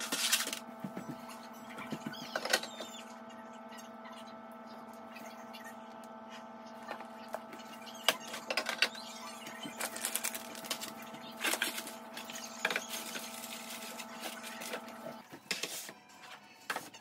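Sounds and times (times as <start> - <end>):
packaging crinkling: 0.0 - 0.6, 9.7 - 15.0
electrical hum: 0.0 - 15.4.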